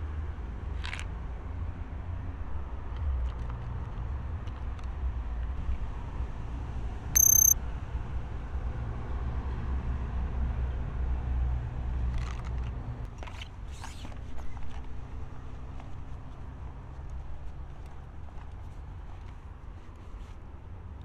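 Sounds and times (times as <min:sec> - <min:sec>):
high-pitched electronic beep: 0:07.2 - 0:07.6.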